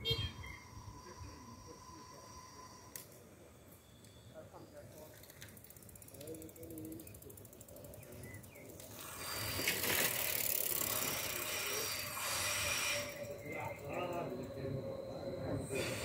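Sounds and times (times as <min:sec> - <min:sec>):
bicycle freewheel ticking: 0:05.0 - 0:16.0.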